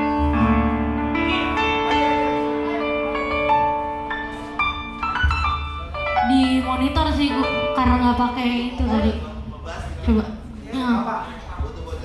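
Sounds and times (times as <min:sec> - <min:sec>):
electric keyboard chords: 0:00.0 - 0:09.5.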